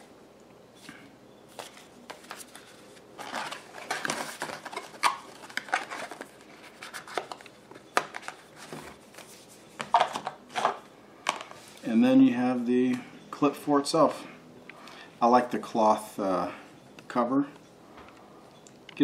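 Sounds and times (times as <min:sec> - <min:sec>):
paper rustling: 0:01.5 - 0:07.5.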